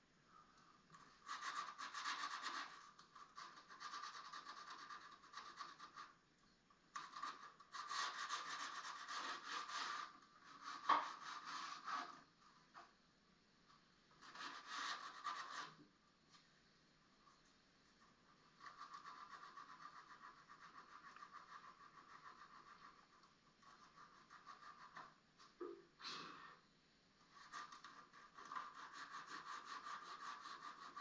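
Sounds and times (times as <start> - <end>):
sandpaper rubbing on wood: 1.2 - 2.8, 7.0 - 12.1, 14.2 - 15.8, 18.6 - 23.1, 27.4 - 31.0.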